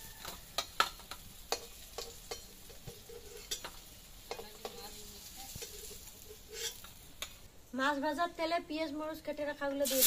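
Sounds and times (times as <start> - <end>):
sizzle of frying oil: 0.0 - 10.0
metal spatula scraping a metal pan: 0.2 - 7.0.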